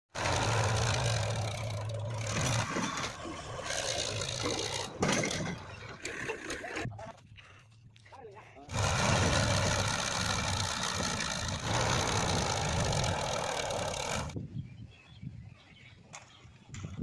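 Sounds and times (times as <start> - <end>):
diesel tractor engine running: 0.1 - 6.2, 8.7 - 14.4.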